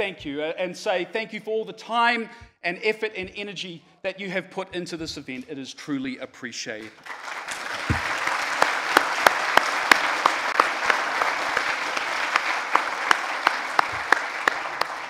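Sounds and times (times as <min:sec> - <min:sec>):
crowd applauding: 0:06.8 - 0:15.0.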